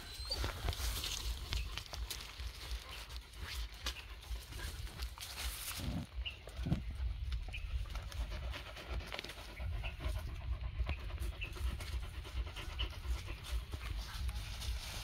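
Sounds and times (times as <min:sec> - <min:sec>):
dog panting: 0:07.8 - 0:15.0.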